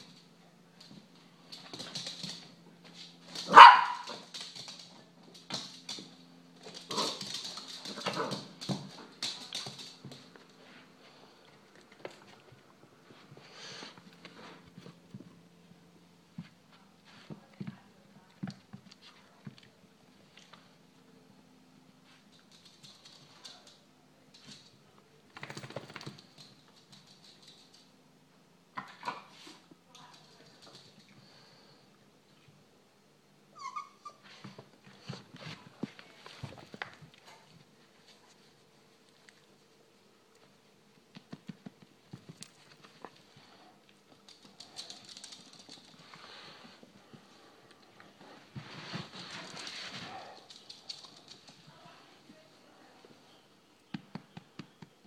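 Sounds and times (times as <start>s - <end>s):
small dog barking: 3.5s - 4.2s
dog claws clicking on wooden floor: 25.3s - 27.9s.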